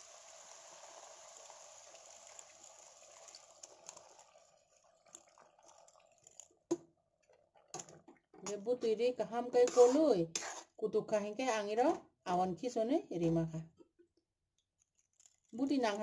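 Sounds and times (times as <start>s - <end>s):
water splashing into hot pan: 0.0s - 6.8s
drips and small clicks: 3.2s - 8.7s, 13.8s - 16.0s.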